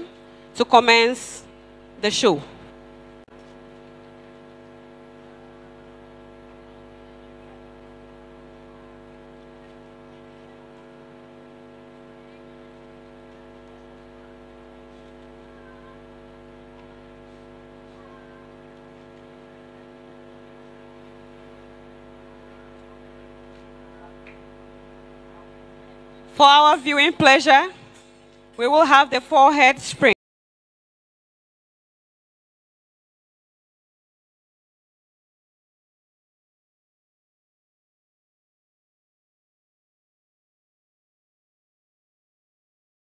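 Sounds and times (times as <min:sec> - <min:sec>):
electrical mains hum: 0:00.0 - 0:30.2.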